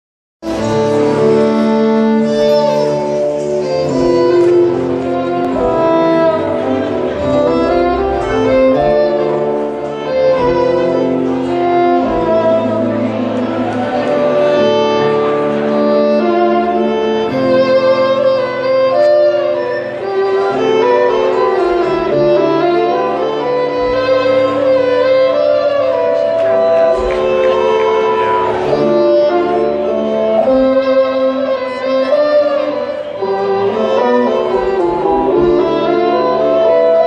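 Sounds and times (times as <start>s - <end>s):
fiddle playing a tune: 0.4s - 37.0s.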